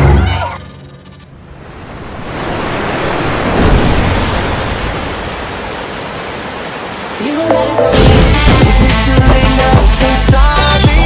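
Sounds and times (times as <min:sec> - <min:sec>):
music: 0:00.0 - 0:01.2, 0:07.2 - 0:11.0.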